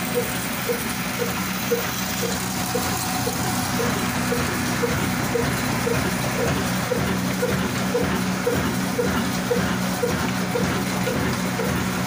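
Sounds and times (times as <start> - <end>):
diesel engine thumping: 0.0 - 12.0.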